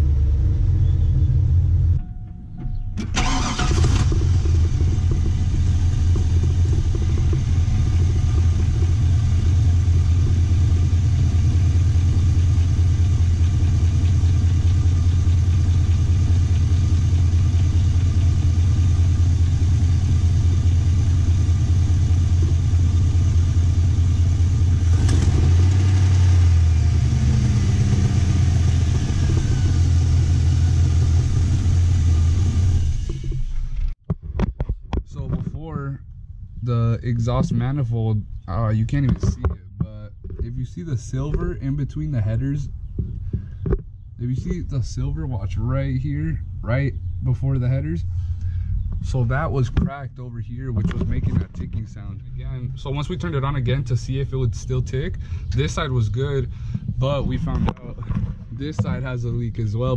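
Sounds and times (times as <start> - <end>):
engine idling: 0.0 - 34.0, 43.2 - 59.9
exhaust leak ticking: 2.5 - 33.2.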